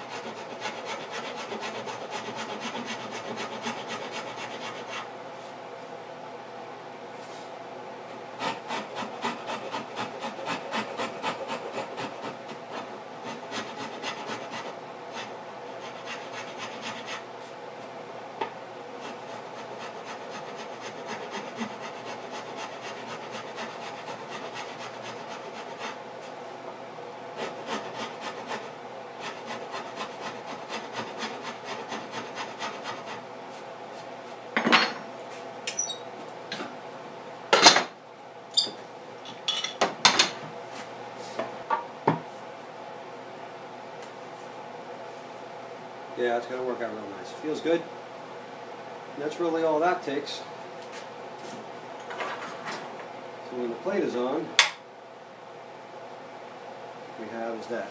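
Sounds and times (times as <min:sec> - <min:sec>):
hand tool scraping wood: 0:00.0 - 0:05.1, 0:08.4 - 0:17.2, 0:19.0 - 0:26.0, 0:27.4 - 0:33.2.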